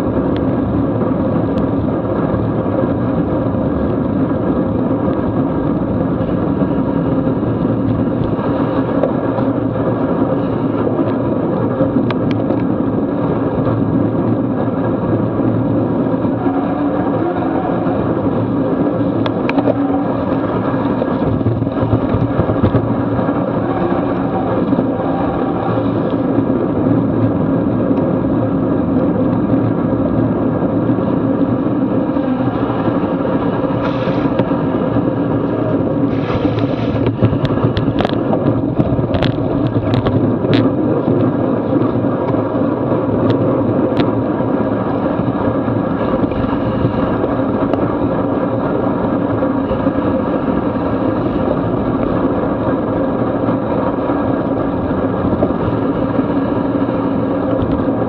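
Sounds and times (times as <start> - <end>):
bicycle road noise on wet asphalt: 0.0 - 58.0
wind rushing: 0.0 - 58.0
sharp clicks and knocks: 36.5 - 41.3.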